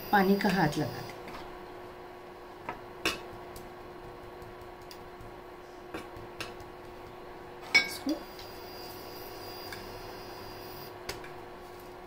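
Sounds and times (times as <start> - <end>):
kitchen clicks and taps: 2.6 - 8.1.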